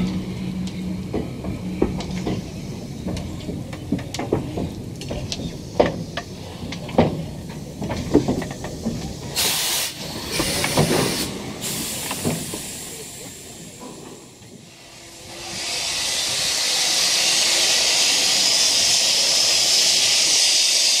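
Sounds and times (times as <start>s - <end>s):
steam locomotive running gear clanks: 0.0s - 21.0s
steam hissing bursts: 8.4s - 21.0s.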